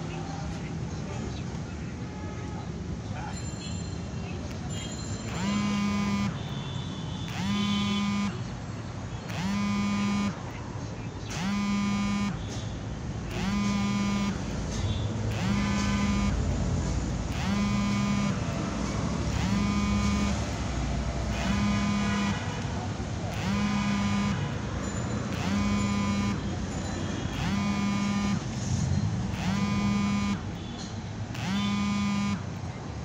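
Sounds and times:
street traffic noise: 0:00.0 - 0:33.0
horn-like electronic alarm: 0:04.7 - 0:08.5, 0:09.2 - 0:10.6, 0:11.3 - 0:12.6, 0:13.3 - 0:16.6, 0:17.2 - 0:28.7, 0:29.3 - 0:32.6.

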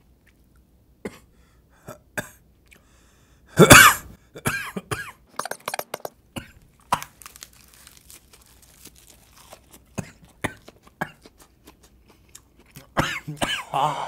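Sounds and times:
person coughing: 0:03.6 - 0:05.2, 0:13.0 - 0:14.0.

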